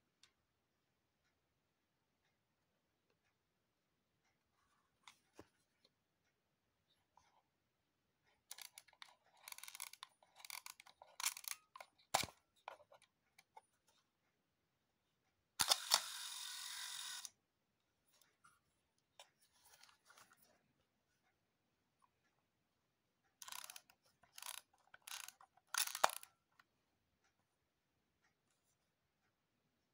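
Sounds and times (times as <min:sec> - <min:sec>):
camera winding ratchet clicks: 0:08.5 - 0:12.3, 0:15.6 - 0:17.3, 0:23.4 - 0:26.3
camera shutter click: 0:15.6 - 0:17.3.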